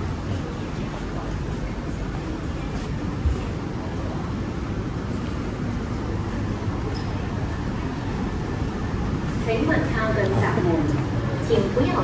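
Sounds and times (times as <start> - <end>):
electric train rumbling: 0.0 - 12.0.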